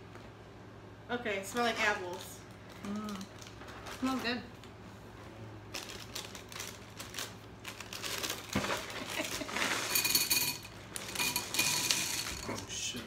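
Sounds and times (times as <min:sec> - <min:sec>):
plastic bag crinkling: 0:02.1 - 0:04.7, 0:05.6 - 0:10.2.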